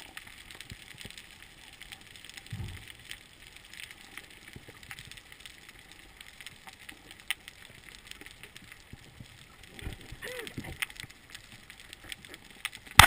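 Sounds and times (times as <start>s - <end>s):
snapping shrimp crackle underwater: 0.0s - 13.0s.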